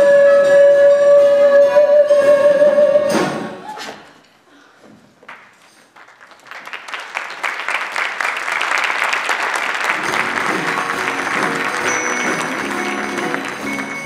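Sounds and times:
stage music: 0.0s - 3.6s, 7.6s - 14.0s
audience applauding: 5.3s - 14.0s.

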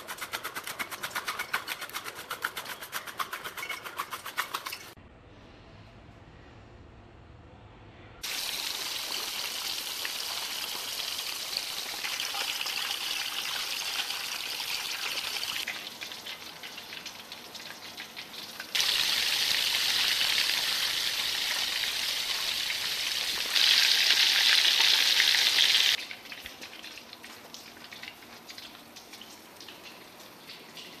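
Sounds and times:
fish sizzling in a pan: 8.2s - 15.7s, 18.8s - 26.0s.

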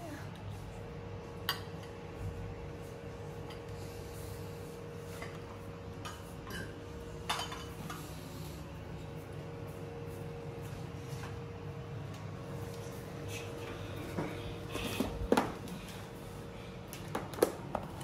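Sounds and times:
spoons clinking on ceramic bowls: 6.0s - 7.8s.

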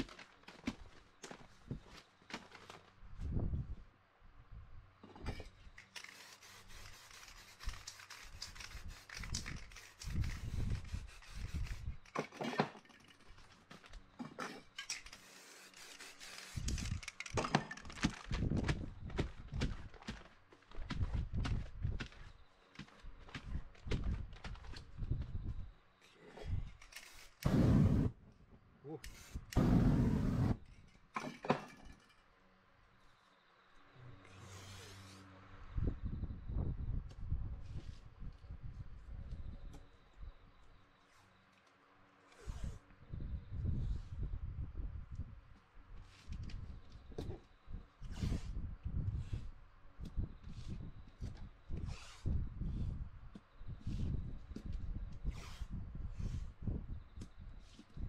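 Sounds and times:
spray paint can hissing: 6.0s - 11.8s, 15.2s - 16.8s.

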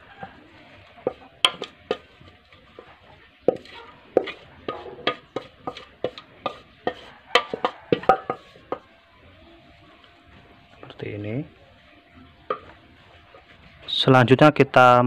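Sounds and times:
metal pot knocking on pan: 1.0s - 8.9s, 12.4s - 12.8s.

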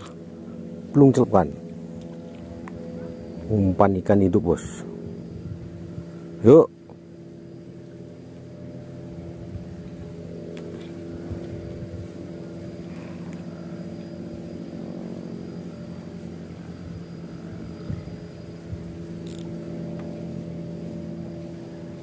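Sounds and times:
engine humming steadily: 0.0s - 22.0s
small clicks: 19.2s - 20.1s.

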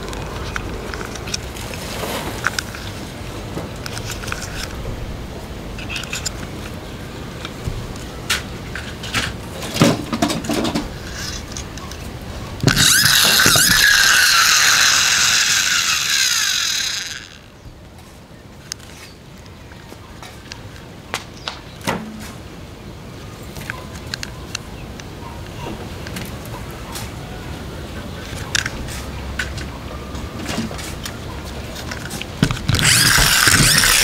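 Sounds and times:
plastic gear whir: 0.0s - 2.9s, 10.5s - 12.0s, 12.6s - 17.5s, 31.8s - 34.0s
toy cars clicking on wooden table: 12.6s - 17.5s, 32.4s - 34.0s.

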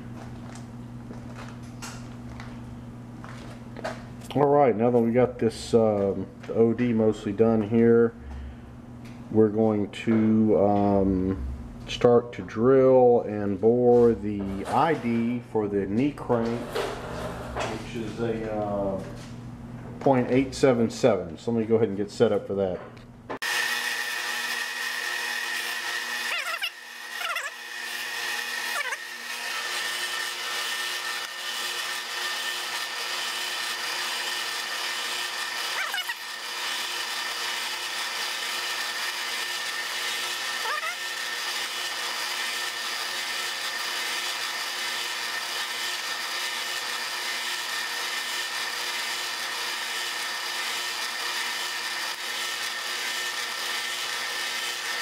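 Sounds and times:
drill cutting hiss: 23.4s - 55.0s
metal lathe running: 23.4s - 55.0s.

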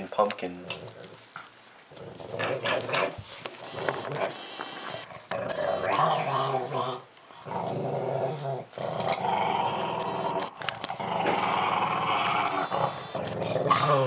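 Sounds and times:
dog growling: 0.6s - 14.0s.

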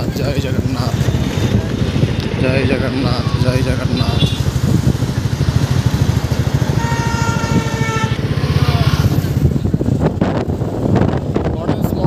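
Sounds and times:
motorcycle engine running: 0.0s - 11.6s
wind buffeting microphone: 0.0s - 12.0s
vehicle horn: 3.9s - 4.5s, 6.6s - 9.1s.

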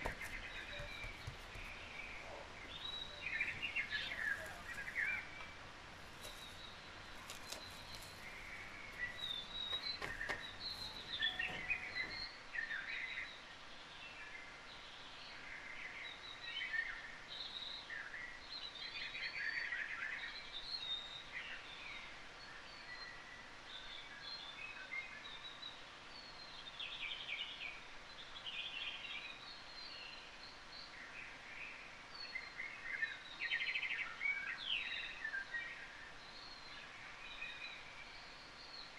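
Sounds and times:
faint steady hiss: 0.0s - 38.9s
small birds chirping: 0.0s - 38.9s
clicks and crackles: 6.1s - 11.8s.

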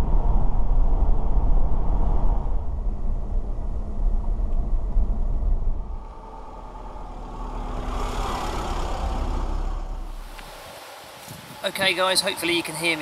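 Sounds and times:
car engine and road rumble: 0.0s - 11.6s
tyres rushing on road: 6.0s - 13.0s.

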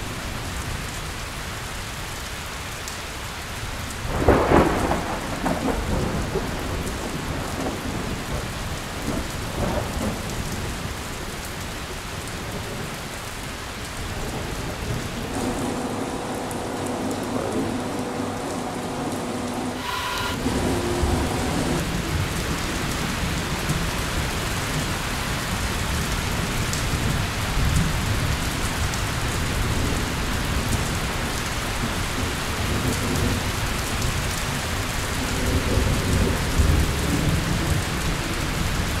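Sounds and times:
heavy rain: 0.0s - 39.0s
thunder rolling: 4.1s - 10.4s, 14.0s - 25.0s.

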